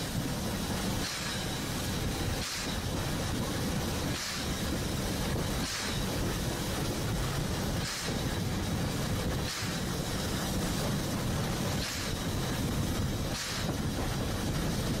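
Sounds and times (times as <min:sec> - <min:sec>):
train rumbling: 0:00.0 - 0:15.0
short hiss: 0:01.0 - 0:02.9, 0:04.0 - 0:04.6, 0:05.5 - 0:06.1, 0:07.8 - 0:08.4, 0:09.4 - 0:11.1, 0:11.7 - 0:12.7, 0:13.3 - 0:13.8.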